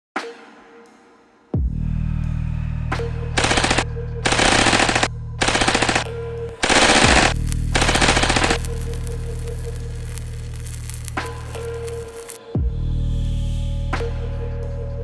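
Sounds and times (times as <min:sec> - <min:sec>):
automatic rifle fire bursts: 0:03.4 - 0:08.8.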